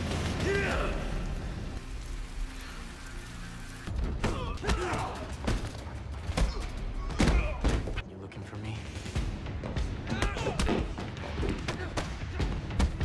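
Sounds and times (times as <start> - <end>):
people grunting and shouting: 0.2 - 1.6, 4.0 - 8.0, 9.8 - 13.0.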